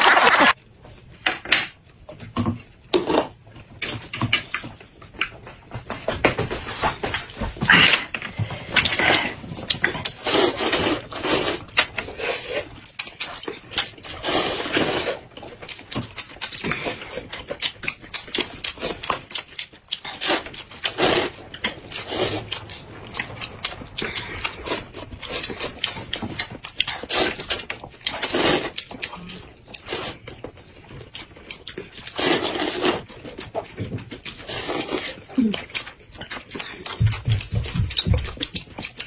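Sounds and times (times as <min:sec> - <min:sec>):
chewing: 0:08.4 - 0:39.0
slurping noodles: 0:10.0 - 0:12.7, 0:14.0 - 0:15.2, 0:19.9 - 0:28.9, 0:29.8 - 0:30.3, 0:32.0 - 0:33.1, 0:34.3 - 0:35.3.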